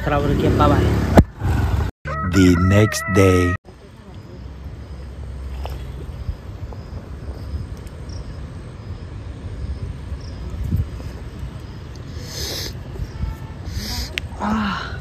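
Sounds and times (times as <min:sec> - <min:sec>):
high insect chirps: 0:06.1 - 0:13.3.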